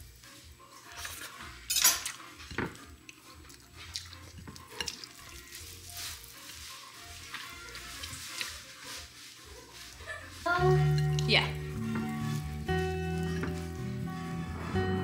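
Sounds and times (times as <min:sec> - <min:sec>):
metal knife clinking: 0:01.7 - 0:02.2, 0:10.8 - 0:11.3.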